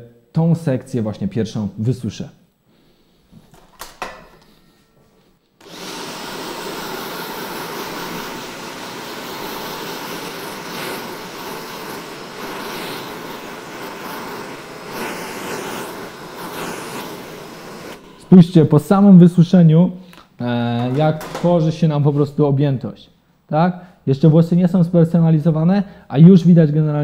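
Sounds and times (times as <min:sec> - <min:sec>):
hair dryer blowing: 0:05.6 - 0:19.2.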